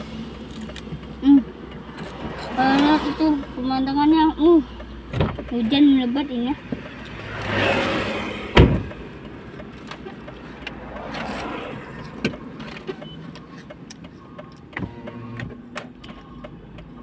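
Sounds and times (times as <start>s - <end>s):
passing vehicle noise: 0.0s - 17.0s
motorbike passing close by: 7.2s - 8.6s.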